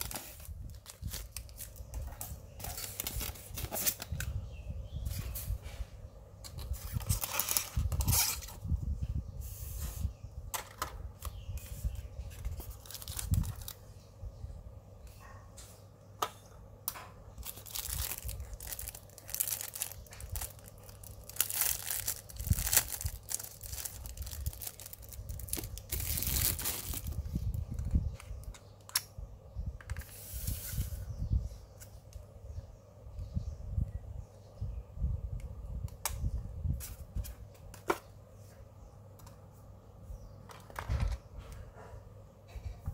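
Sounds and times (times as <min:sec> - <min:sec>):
plastic wrap crinkling: 0:00.0 - 0:01.9, 0:12.4 - 0:13.8, 0:17.4 - 0:27.5.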